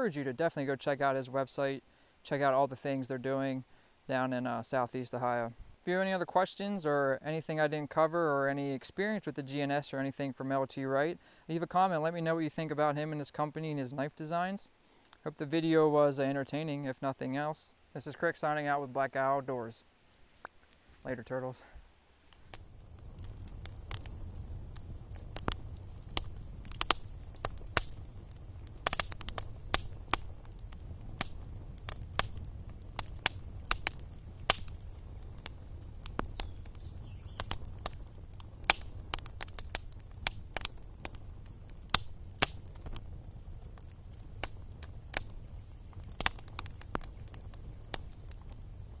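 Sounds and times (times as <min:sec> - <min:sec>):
campfire crackling and popping: 0:22.1 - 0:49.0
low rumble of fire: 0:22.2 - 0:49.0.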